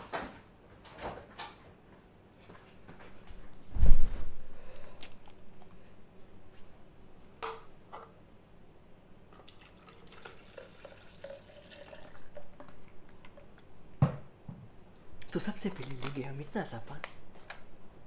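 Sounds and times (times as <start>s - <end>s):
water dripping into a container: 9.3s - 13.6s.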